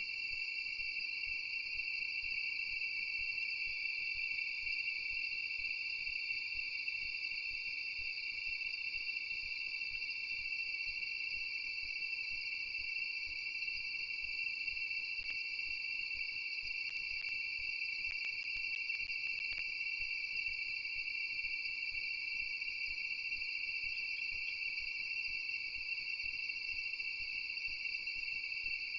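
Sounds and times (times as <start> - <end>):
faint clicks: 18.1 - 19.7.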